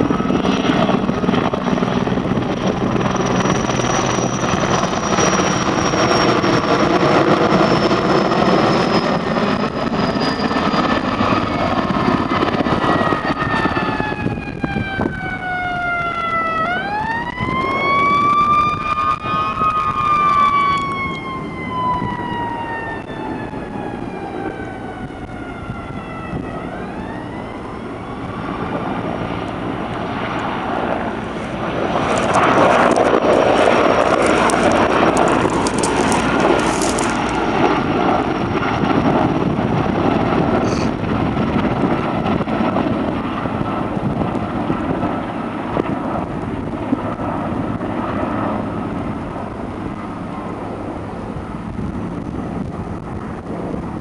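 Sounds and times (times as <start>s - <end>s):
emergency siren wailing: 0.0s - 54.0s
helicopter overhead: 0.0s - 54.0s.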